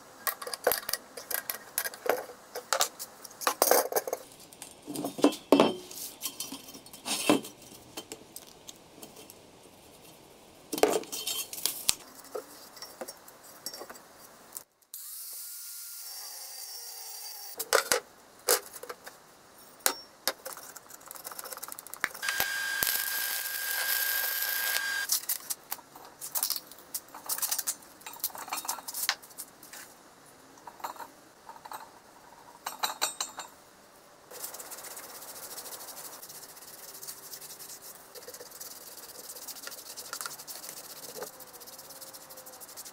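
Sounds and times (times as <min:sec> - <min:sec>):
power tool running: 0:22.2 - 0:25.1.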